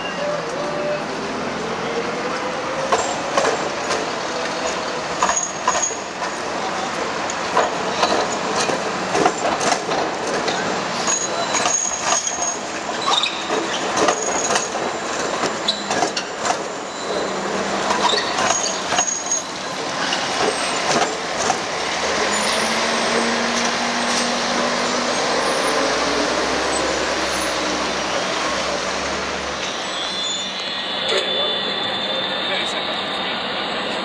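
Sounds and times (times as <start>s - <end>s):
trams moving: 0.0s - 34.0s
bus rumbling past: 21.6s - 29.6s.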